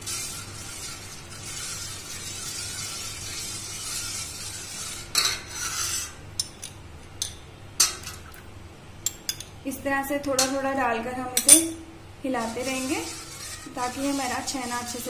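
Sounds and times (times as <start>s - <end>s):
ladle stirring milk in a pot: 0.0s - 6.6s, 11.4s - 15.0s.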